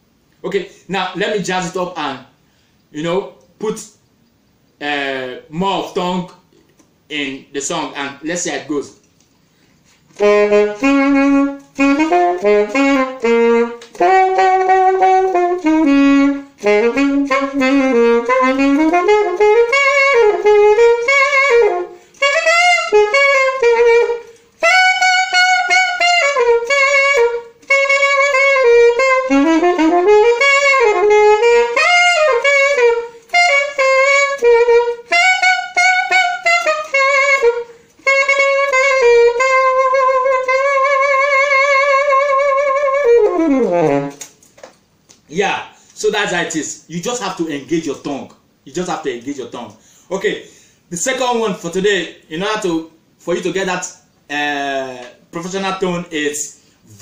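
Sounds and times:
solo saxophone playing jazz: 10.0 - 44.4.

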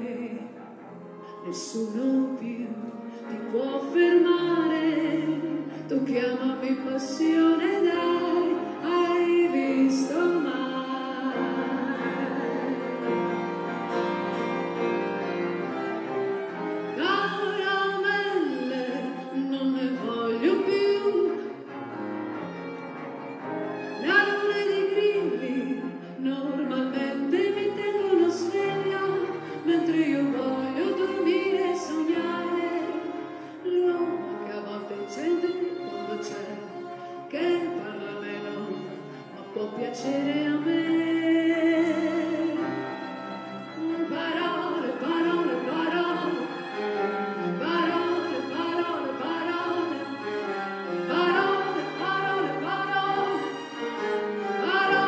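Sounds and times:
woman singing: 0.0 - 0.6, 1.2 - 13.4, 16.9 - 21.7, 23.9 - 43.0, 43.6 - 50.2, 50.8 - 53.7, 54.4 - 55.0
chamber ensemble playing: 8.1 - 17.4, 42.4 - 55.0.

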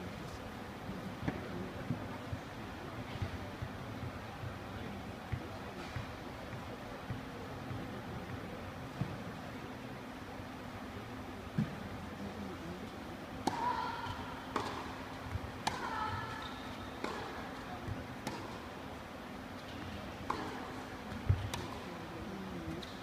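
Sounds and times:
racket striking tennis ball: 13.4 - 13.8, 14.5 - 15.0, 15.6 - 17.4, 18.2 - 18.6, 20.2 - 21.9
tennis ball bouncing: 13.4 - 18.6, 19.8 - 21.9.

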